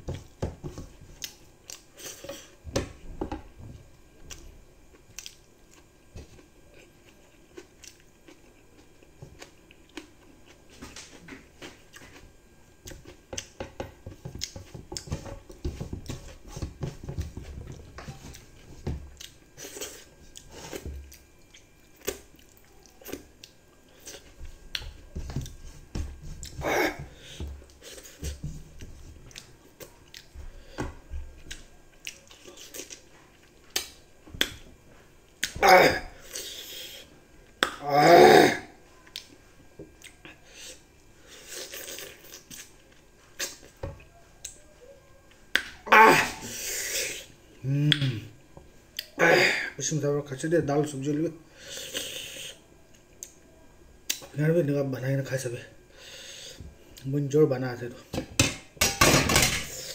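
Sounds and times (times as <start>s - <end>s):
person chewing: 1.1s - 2.6s, 4.3s - 16.4s, 17.1s - 25.6s, 26.3s - 30.4s, 31.4s - 34.6s, 39.0s - 44.6s.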